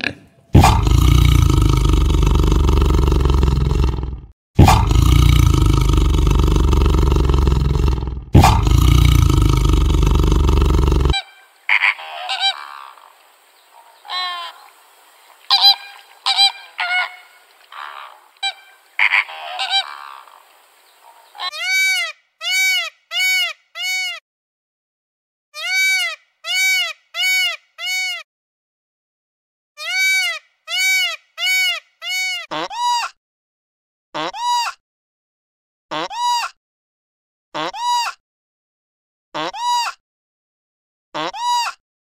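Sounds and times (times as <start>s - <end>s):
tiger roaring: 0.5s - 11.2s
peacock calling: 11.0s - 24.2s, 25.6s - 28.2s, 29.8s - 32.5s
flamingos honking: 11.1s - 22.0s.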